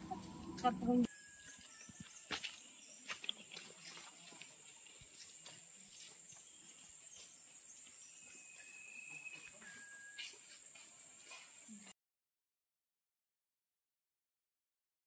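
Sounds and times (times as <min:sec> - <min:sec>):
high-pitched insect drone: 0:00.0 - 0:03.2, 0:06.0 - 0:11.9.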